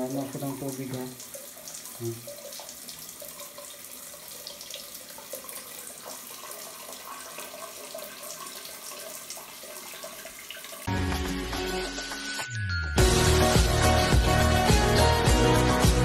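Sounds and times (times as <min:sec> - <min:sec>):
water flowing down drain: 0:00.0 - 0:10.9
music: 0:10.9 - 0:16.0.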